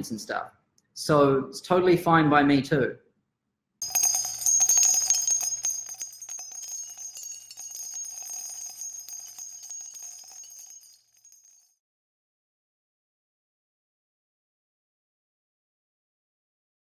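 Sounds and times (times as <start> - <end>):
small bells shimmering: 3.8 - 11.8.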